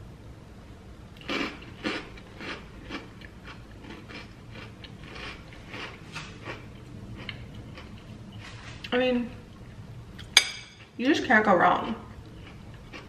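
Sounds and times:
chewing crunchy food: 1.2s - 8.9s, 11.8s - 13.0s.

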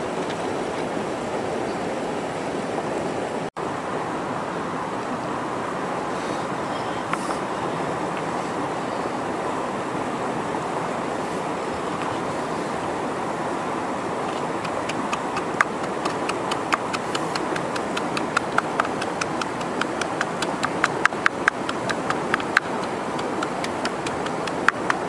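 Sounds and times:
river flowing over rocks: 0.0s - 25.0s
pestle pounding in bowl: 14.6s - 25.0s.

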